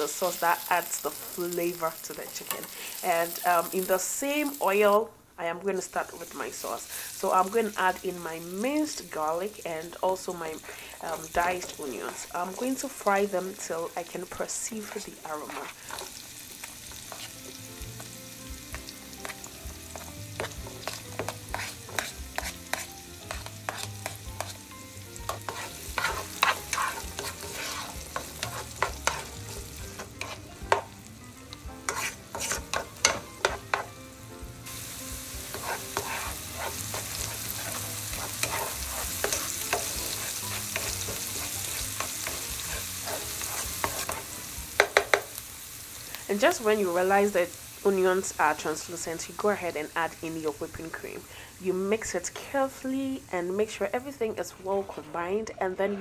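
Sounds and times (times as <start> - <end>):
onion sizzling in hot oil: 0.0 - 55.5
spoon scraping pan: 10.6 - 13.0, 13.6 - 31.0, 31.8 - 34.0, 34.8 - 45.3, 54.4 - 55.3.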